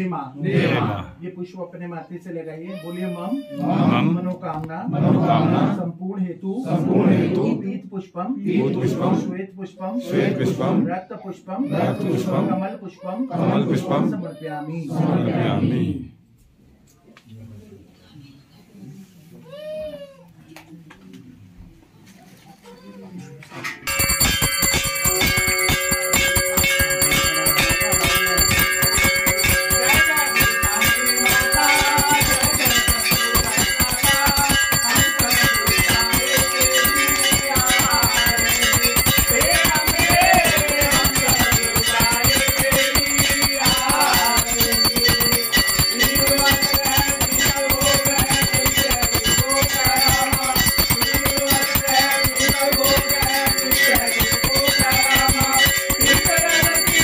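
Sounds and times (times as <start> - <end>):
temple bells ringing rapidly: 23.9 - 57.0
wavering melody: 23.9 - 57.0.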